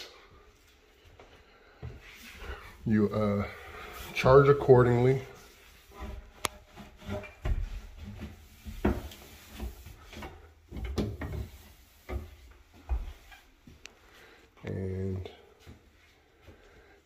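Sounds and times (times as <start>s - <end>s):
hands rubbing cabinetry: 1.8s - 14.1s.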